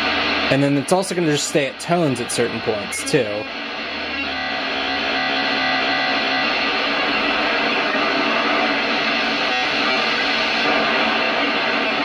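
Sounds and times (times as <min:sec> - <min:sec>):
dense digital noise: 0:00.0 - 0:12.0.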